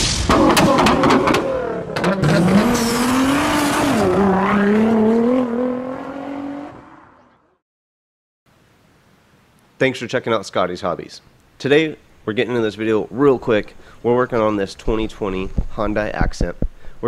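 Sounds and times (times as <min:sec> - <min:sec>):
car engine revving: 0:00.3 - 0:07.3.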